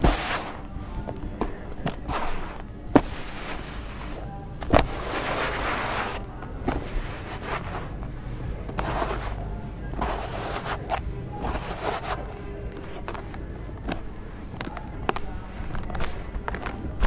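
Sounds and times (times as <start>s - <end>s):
dry sand mix rustling and trickling: 1.6s - 8.0s.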